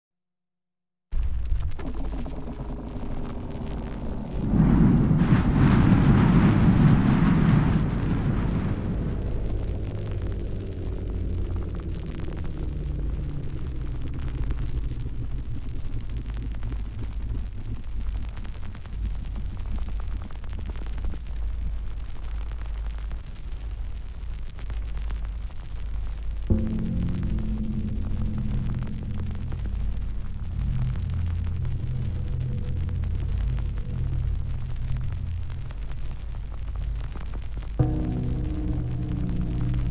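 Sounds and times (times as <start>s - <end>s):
steady low rumble: 1.1s - 39.9s
low pitched hum: 1.2s - 19.7s, 26.5s - 39.9s
fiery blast: 2.9s - 14.0s.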